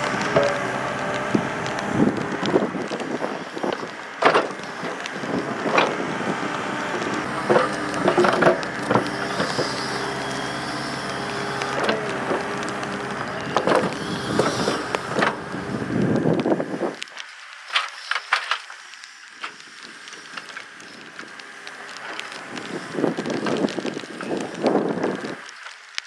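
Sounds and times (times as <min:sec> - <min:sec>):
diesel engine running under load: 0:00.0 - 0:17.0.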